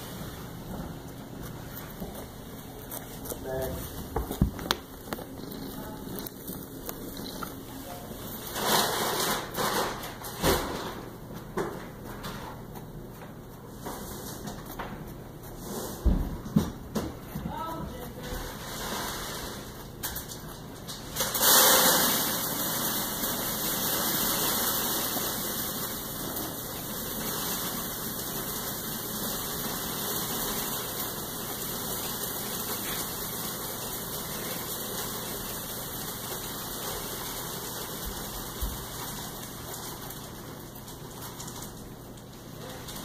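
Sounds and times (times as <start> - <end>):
plastic bag crinkling: 1.6 - 10.4.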